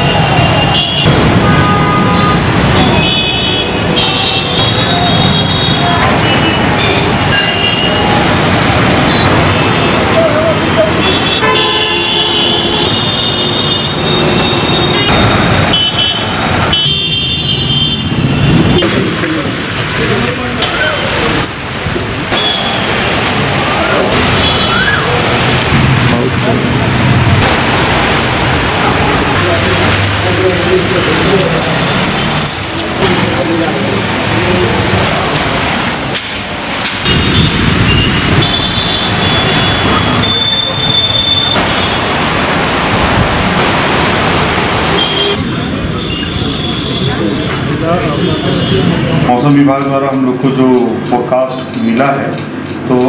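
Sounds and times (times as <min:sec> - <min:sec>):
traffic on a wet road: 0:00.0 - 0:53.0
heavy rain hissing on surfaces: 0:05.1 - 0:11.4, 0:18.2 - 0:46.0.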